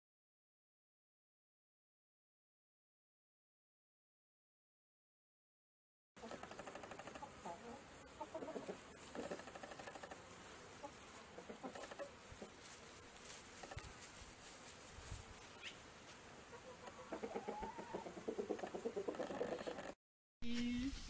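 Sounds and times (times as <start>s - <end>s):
chickens clucking: 6.2s - 12.8s, 16.4s - 20.0s.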